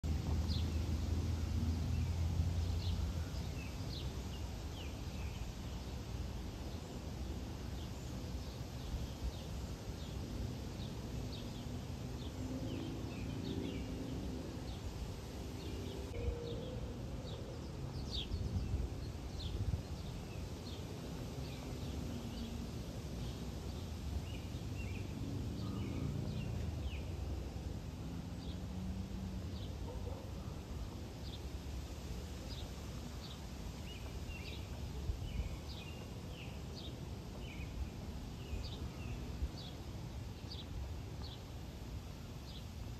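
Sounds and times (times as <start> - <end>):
birds chirping: 29.6 - 31.5.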